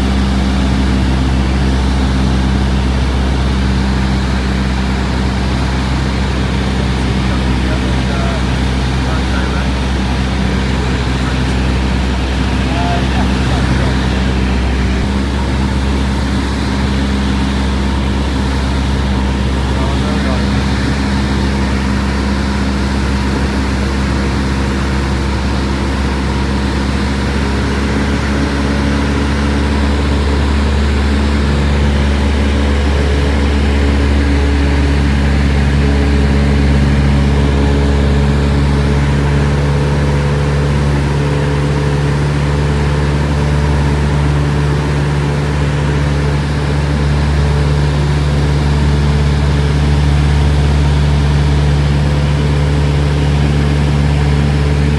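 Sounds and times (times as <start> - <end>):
aircraft engine droning: 0.0 - 54.9.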